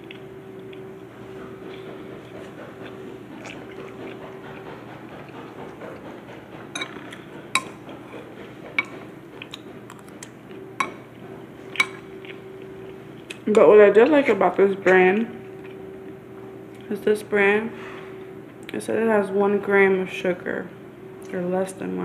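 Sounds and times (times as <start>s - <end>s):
faint steady hum: 6.8s - 22.0s.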